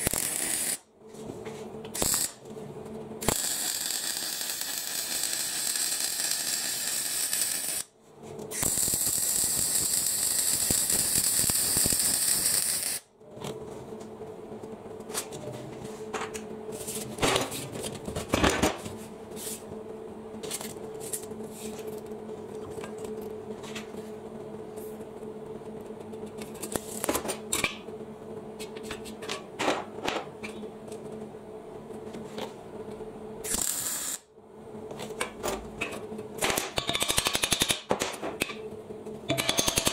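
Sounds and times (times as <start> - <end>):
welding arc crackling: 0.0 - 0.8, 1.9 - 2.4, 3.2 - 7.9, 8.5 - 13.1, 33.4 - 34.3
steady hum: 0.0 - 39.9.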